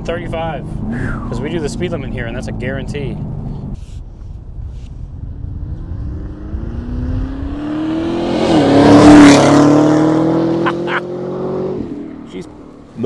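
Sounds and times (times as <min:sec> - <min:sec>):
car engine accelerating hard: 0:05.2 - 0:13.0.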